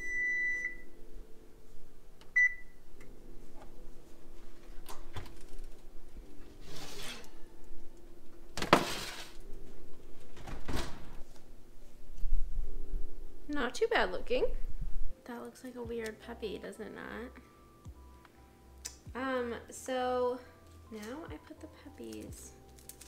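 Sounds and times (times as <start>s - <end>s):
oven beeping: 0.0s - 1.1s, 2.2s - 3.2s
low oven hum: 0.0s - 23.0s
oven door opening: 10.2s - 11.3s.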